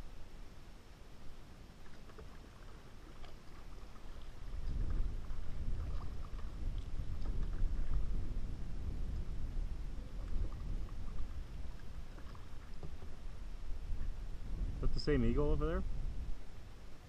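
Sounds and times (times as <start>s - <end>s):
paddle splashing water: 1.3s - 14.4s
low rumble: 4.3s - 17.0s.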